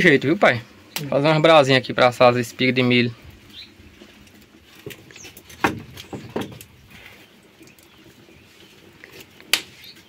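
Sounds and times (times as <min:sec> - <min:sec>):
sharp crack of wood: 0:04.8 - 0:06.8, 0:09.5 - 0:09.9
firewood knocking: 0:04.8 - 0:07.1.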